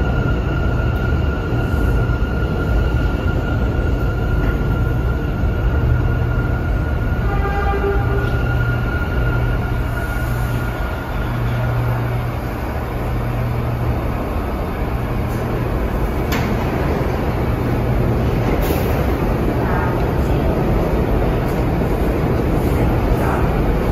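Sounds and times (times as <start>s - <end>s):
subway train motor hum: 0.0s - 23.9s
train high whine: 0.0s - 23.9s.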